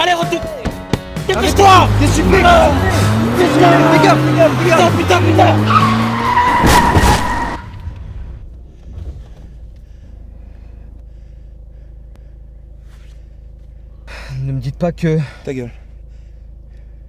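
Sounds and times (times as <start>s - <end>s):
car cabin rumble: 0.0s - 17.0s
car tyres screeching: 1.3s - 14.2s.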